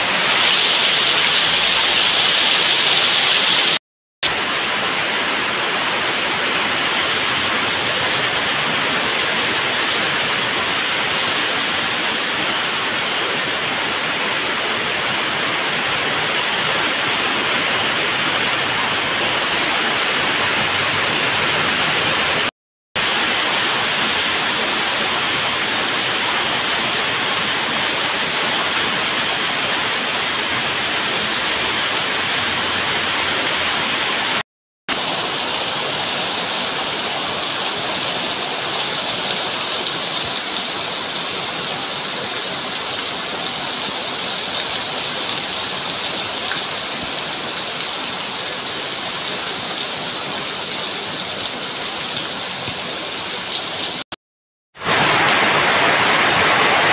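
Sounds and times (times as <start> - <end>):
heavy rain hissing: 0.0 - 36.4, 54.8 - 56.9.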